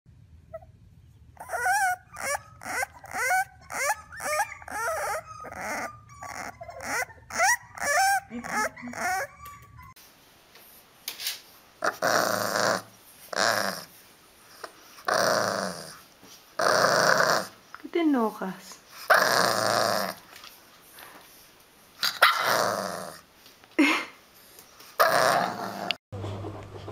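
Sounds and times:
puppies yipping: 0:01.4 - 0:10.0.

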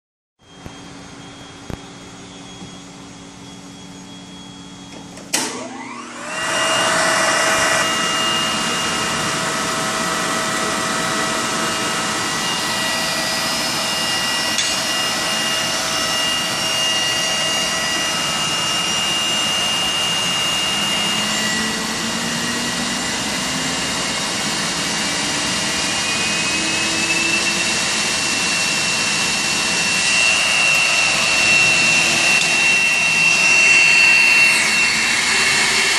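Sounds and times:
blower whining: 0:00.4 - 0:35.9.

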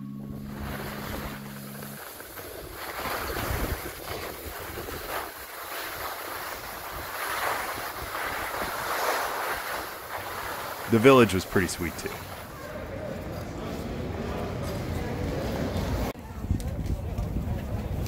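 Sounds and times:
wind rushing over microphone: 0:00.0 - 0:11.0, 0:15.2 - 0:18.0
sliding over snow hiss: 0:00.4 - 0:12.6.

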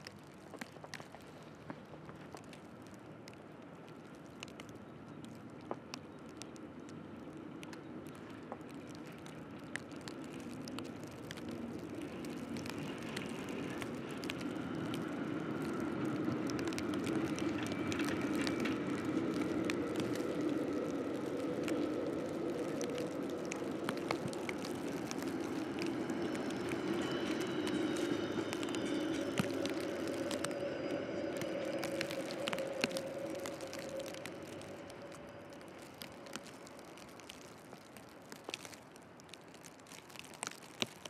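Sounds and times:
sharp crackles: 0:00.0 - 0:41.0
tram rumbling on tracks: 0:10.0 - 0:37.1
tram motor whine: 0:23.2 - 0:35.8.

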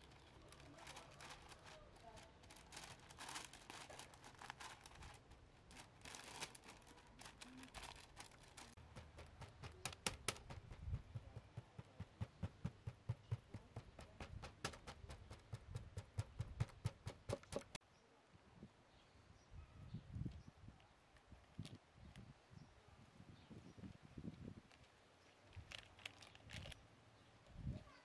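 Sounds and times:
soft rustling and crinkling: 0:00.0 - 0:11.9, 0:23.8 - 0:26.8.

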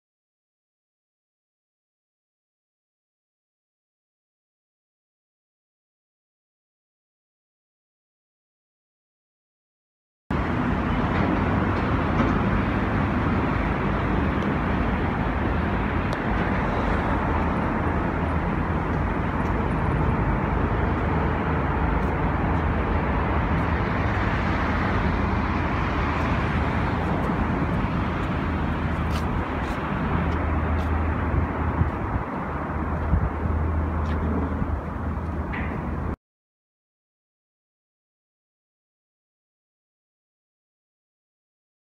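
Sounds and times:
road traffic rumble: 0:10.3 - 0:36.2.

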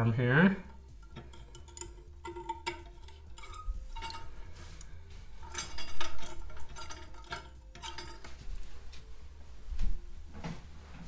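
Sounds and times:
metal ball chain clinking: 0:00.6 - 0:09.0.

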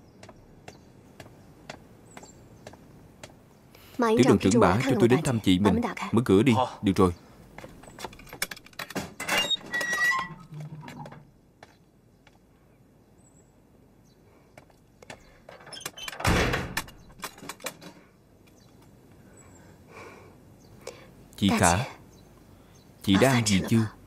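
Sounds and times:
door squeak: 0:09.0 - 0:11.2, 0:15.6 - 0:17.0
heavy door thunk: 0:16.1 - 0:17.0.

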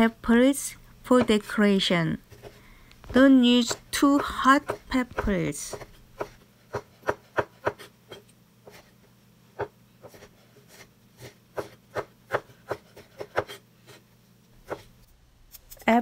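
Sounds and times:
knife chopping on wooden board: 0:01.2 - 0:01.5, 0:02.3 - 0:08.9, 0:09.6 - 0:14.0, 0:14.6 - 0:14.9.

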